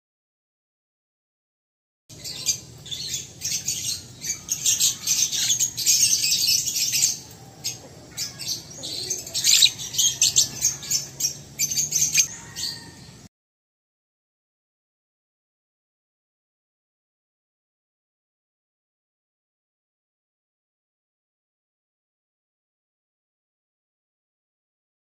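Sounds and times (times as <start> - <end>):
lovebird chattering: 8.9 - 12.3.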